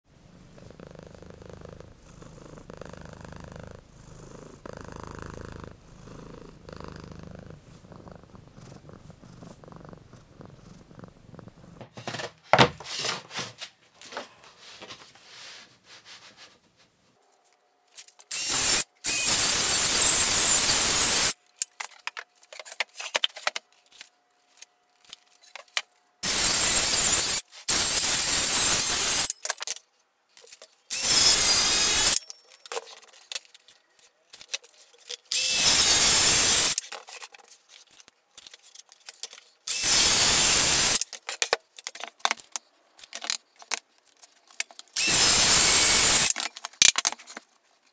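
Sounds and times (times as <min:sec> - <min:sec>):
cat purring: 0:00.3 - 0:11.9
boards being set down: 0:11.8 - 0:15.0.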